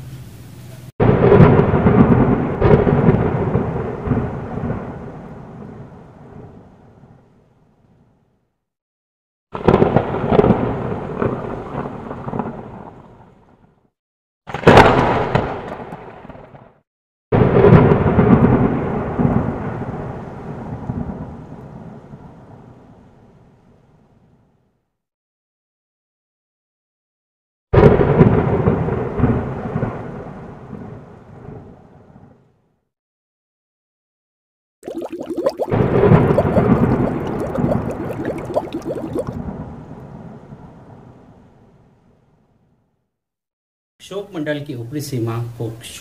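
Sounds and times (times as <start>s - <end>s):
thunder clap and rumble: 1.0s - 6.5s, 9.6s - 13.0s, 17.4s - 22.6s, 27.8s - 31.6s, 35.8s - 40.4s.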